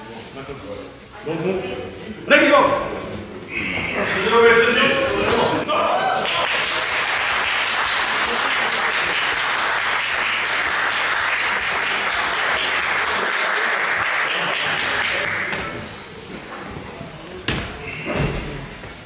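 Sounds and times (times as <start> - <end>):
audience applauding: 6.0 - 15.8.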